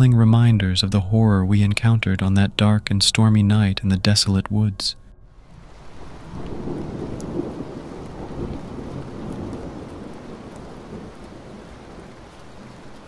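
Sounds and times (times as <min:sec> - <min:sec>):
thunder rumbling: 0:05.2 - 0:13.0
steady rain: 0:05.4 - 0:13.0.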